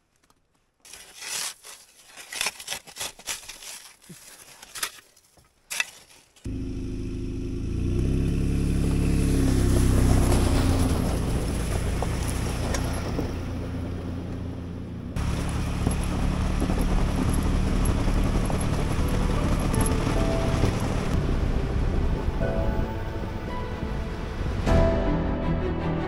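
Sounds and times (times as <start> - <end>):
truck engine accelerating: 6.5 - 26.0.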